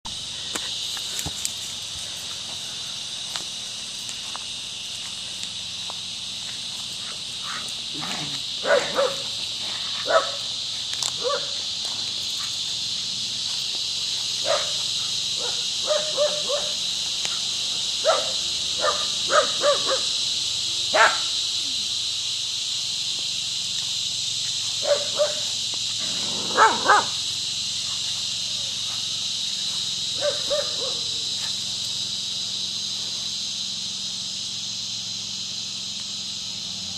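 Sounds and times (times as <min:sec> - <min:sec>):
cicadas buzzing: 0:00.0 - 0:36.9
dog barking: 0:07.5 - 0:09.3, 0:10.0 - 0:10.5, 0:11.2 - 0:11.6, 0:14.4 - 0:14.8, 0:15.4 - 0:16.8, 0:18.0 - 0:20.1, 0:20.9 - 0:21.3, 0:24.8 - 0:25.5, 0:26.3 - 0:27.2, 0:30.1 - 0:31.2.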